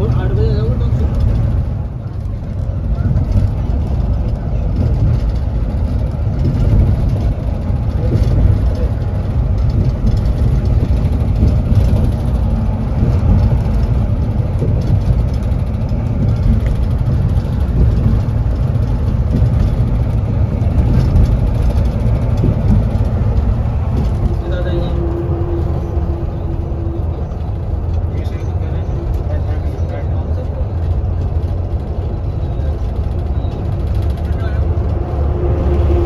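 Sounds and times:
coach engine rumbling: 0.0 - 36.0.

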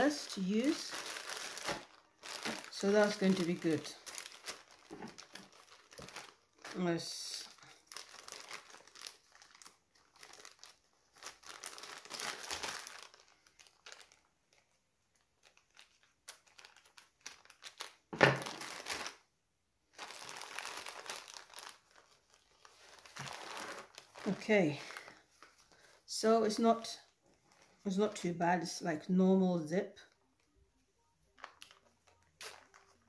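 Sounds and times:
plastic packaging crinkling: 0.0 - 19.3, 19.9 - 28.2, 31.2 - 33.0.

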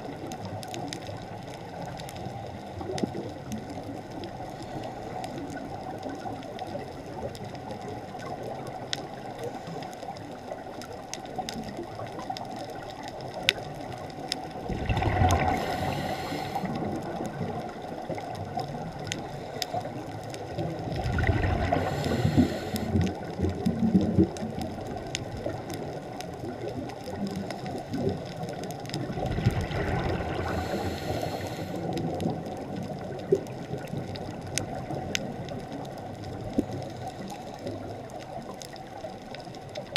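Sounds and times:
muffled underwater hiss: 0.0 - 39.9
faint clicks: 0.1 - 39.9
exhaled bubbles rushing: 14.5 - 19.1, 20.5 - 31.0.

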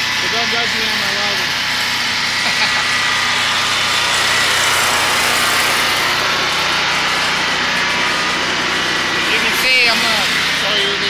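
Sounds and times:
generator engine running: 0.0 - 11.0.

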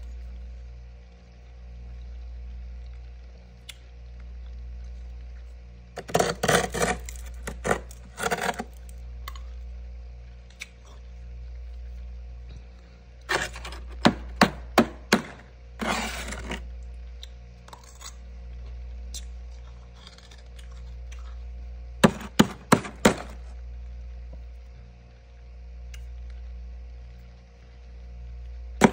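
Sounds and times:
steady low hum: 0.0 - 28.9
spoon scraping frost: 6.0 - 8.9, 13.3 - 14.4, 15.0 - 16.7, 22.0 - 23.5
sharp tapping on ice: 22.0 - 23.4.

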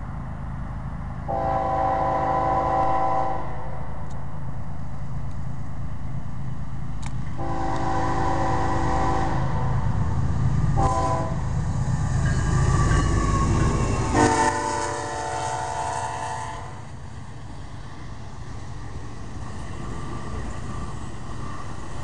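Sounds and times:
locomotive engines rumbling: 0.0 - 22.0
train horn blasts: 1.3 - 3.7, 7.4 - 9.8, 10.8 - 11.4, 14.0 - 16.8.

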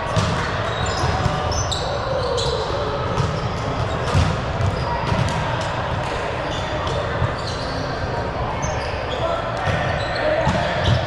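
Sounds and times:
balls bouncing on gym floor: 0.0 - 1.6, 3.0 - 6.2, 9.6 - 11.0
voices in echoing hall: 0.0 - 11.0
shoe squeaks: 0.6 - 5.0, 6.4 - 11.0.

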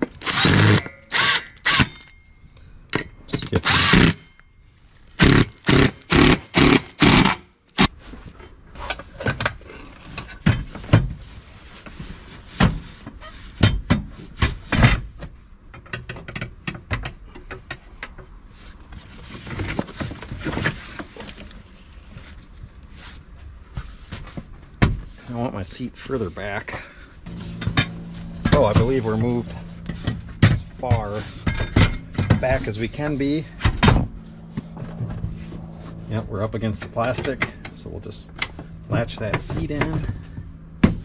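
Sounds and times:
cordless drill driving bolts: 0.0 - 2.1, 3.4 - 4.2, 5.2 - 7.4.

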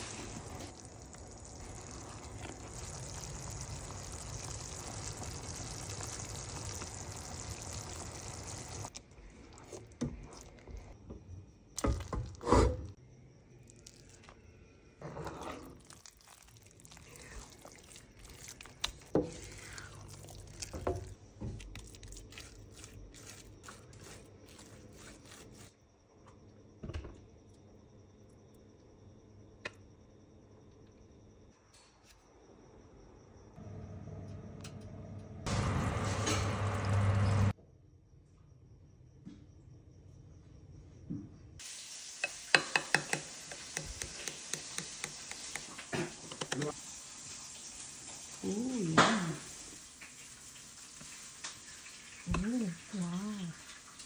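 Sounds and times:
steady hiss: 0.0 - 8.9
sticky rice squelching: 15.7 - 20.9, 21.6 - 25.7.

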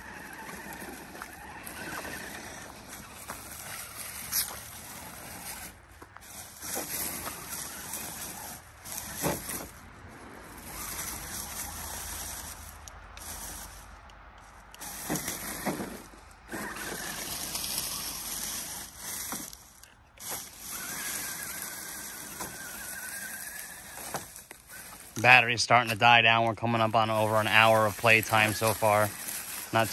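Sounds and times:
electric motor whining: 0.0 - 9.8, 10.4 - 13.8, 14.7 - 25.2, 27.1 - 29.9
chassis knocks and scrapes: 0.1 - 22.7.

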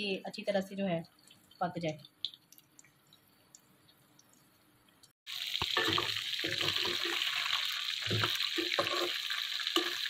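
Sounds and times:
chicken frying in hot oil: 5.3 - 10.0
spatula scraping a pan: 8.0 - 10.0.

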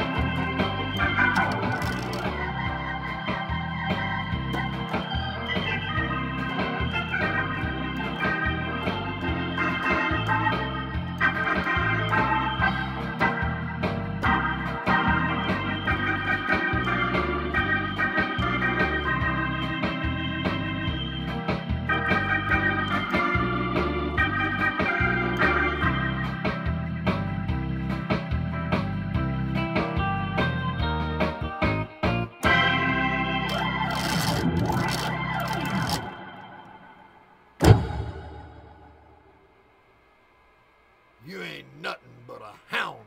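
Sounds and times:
drawbar organ rock melody: 0.0 - 34.4.

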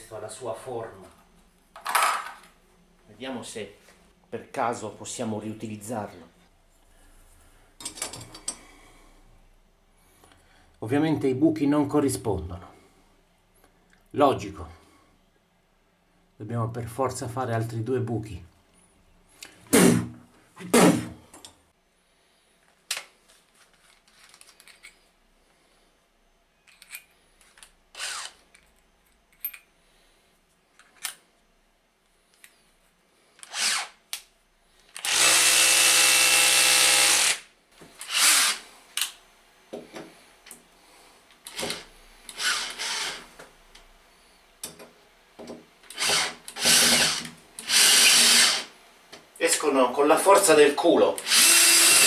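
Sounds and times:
cordless drill driving screws: 28.0 - 28.4, 33.4 - 34.0, 35.0 - 38.6, 41.5 - 43.3, 45.9 - 48.7, 51.2 - 52.0.

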